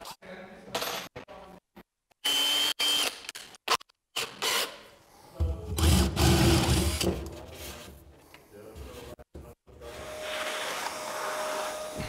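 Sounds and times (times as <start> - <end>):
power drill whining: 2.2 - 3.2, 4.2 - 4.8, 5.8 - 7.1.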